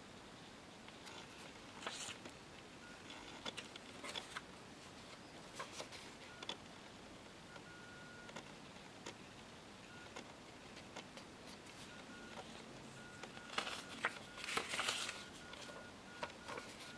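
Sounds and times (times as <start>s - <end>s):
paper cards rustling and clicking: 1.0s - 2.4s, 3.1s - 6.6s, 10.1s - 16.9s.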